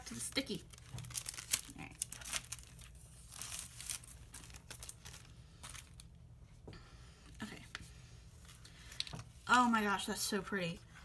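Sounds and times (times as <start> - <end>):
cellophane sleeve crinkling: 0.0 - 6.2.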